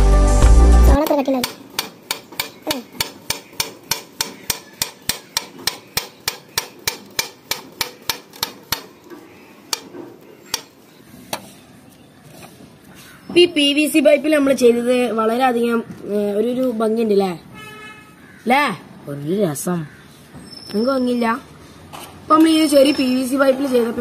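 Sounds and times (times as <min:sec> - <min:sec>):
background music: 0:00.0 - 0:01.0.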